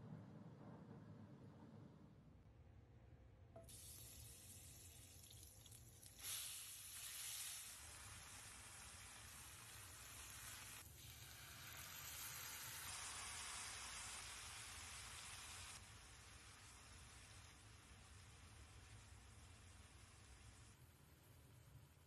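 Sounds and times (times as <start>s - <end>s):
chicken sizzling in a pan: 6.0s - 20.7s.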